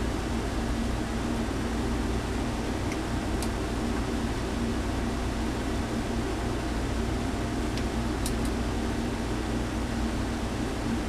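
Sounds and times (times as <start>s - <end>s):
fan-like hum and hiss: 0.0s - 11.0s.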